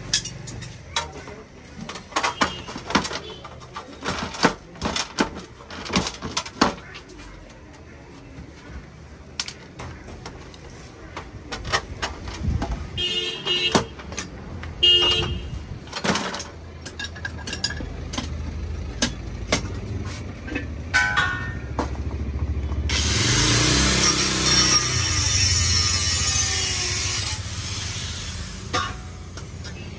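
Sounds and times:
metal parts clanking and tapping: 0.0 - 7.7, 9.3 - 10.4, 11.2 - 12.8, 13.5 - 22.2, 28.6 - 29.9
loud continuous scraping: 22.8 - 29.9.

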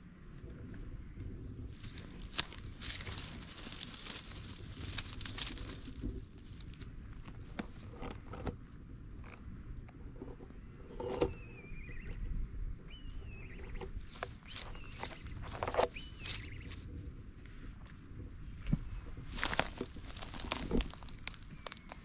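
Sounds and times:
wind rumble on microphone: 0.0 - 22.0
dry leaves rustling: 1.6 - 7.8, 14.0 - 16.9, 19.3 - 22.0
bird whistling calls: 11.3 - 12.3, 12.9 - 16.8.

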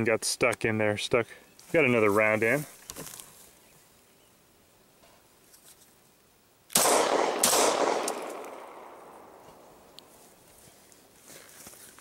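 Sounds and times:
pistol shots echoing: 6.7 - 9.9.

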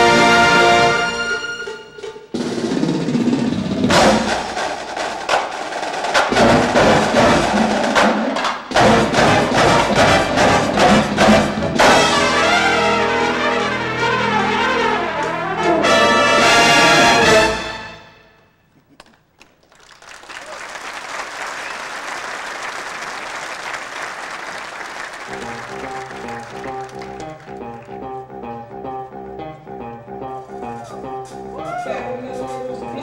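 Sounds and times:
brass and percussion band playing: 0.0 - 18.3, 25.3 - 27.5.

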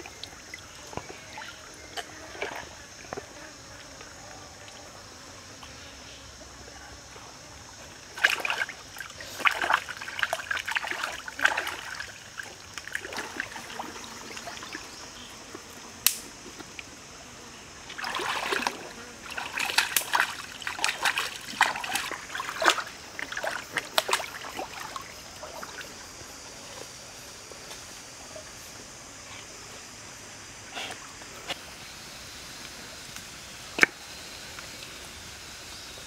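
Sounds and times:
water splashing and dripping: 8.1 - 14.9, 17.9 - 25.8
sharp click: 16.0 - 16.3
steady hiss: 22.0 - 36.0.

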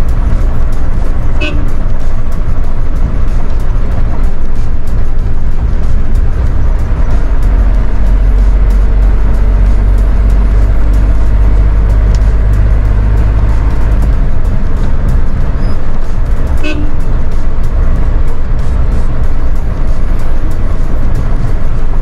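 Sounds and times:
diesel engine and road rumble: 0.0 - 22.0
music: 0.0 - 22.0
short vehicle horn toot: 1.4 - 1.7, 16.6 - 17.0.

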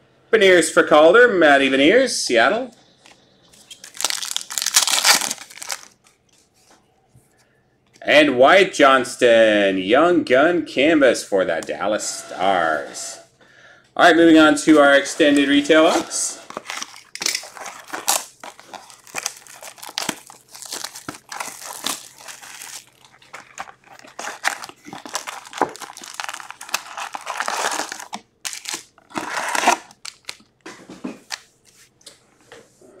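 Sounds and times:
foil packs rustling: 3.6 - 6.0, 14.7 - 30.4
plastic wrap crinkling and tearing: 3.6 - 6.0, 15.0 - 30.5.

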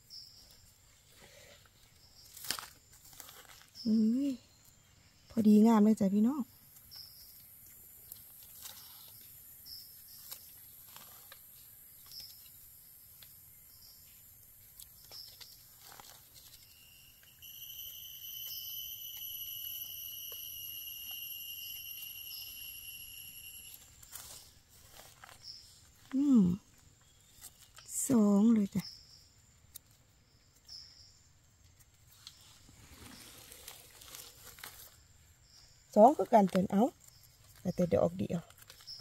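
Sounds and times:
faint high chirps: 15.0 - 29.4
steady high whistle: 17.2 - 24.0
knife scraping into soil: 32.0 - 35.1.

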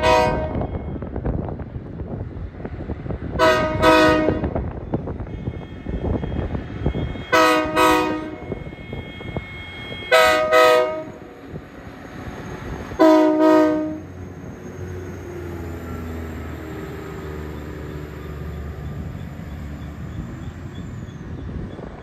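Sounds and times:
locomotive horn blasts: 0.0 - 1.1, 3.3 - 11.4, 13.0 - 14.1
diesel engine rumbling: 0.0 - 22.0.

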